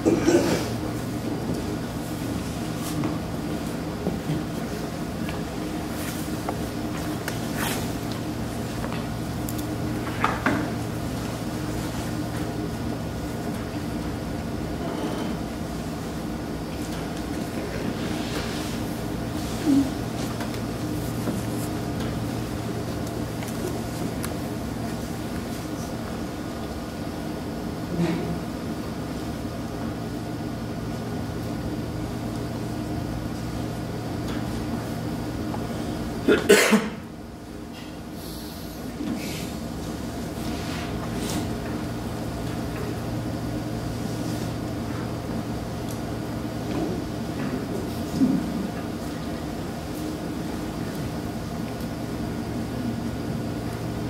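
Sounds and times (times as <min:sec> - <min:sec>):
person coughing: 0:00.0 - 0:00.8, 0:36.2 - 0:37.1
room tone hum: 0:00.0 - 0:54.0.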